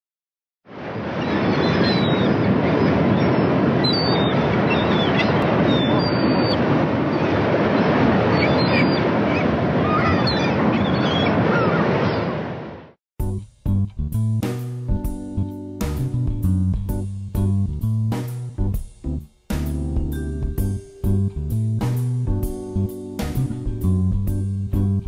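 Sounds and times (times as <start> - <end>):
ocean surf: 0.7 - 13.0.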